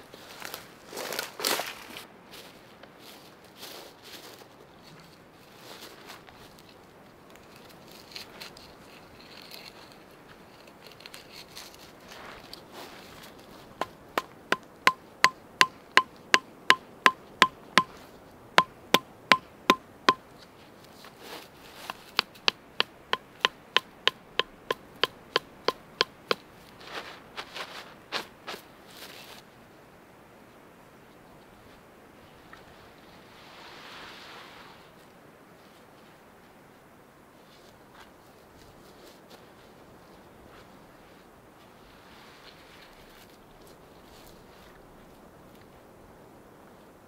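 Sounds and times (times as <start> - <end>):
quiet rustling: 0.0 - 14.9, 37.4 - 45.8
hatchet knocking wooden stakes: 13.8 - 17.9, 18.6 - 20.2, 21.9 - 26.4.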